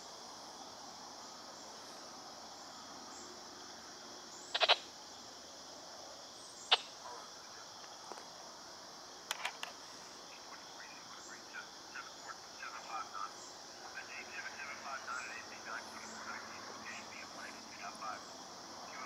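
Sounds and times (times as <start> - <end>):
insects buzzing: 0.0 - 19.0.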